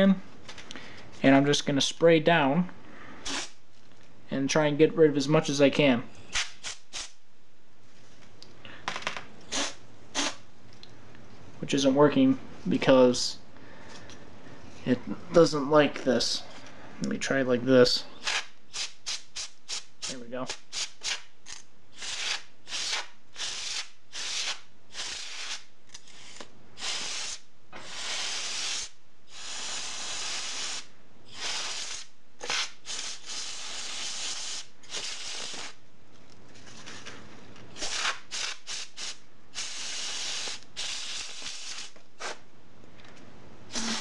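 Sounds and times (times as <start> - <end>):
compressed air spraying: 3.2 - 3.6, 6.3 - 7.2, 9.5 - 10.4, 22.0 - 35.8, 37.8 - 42.4, 43.7 - 44.0.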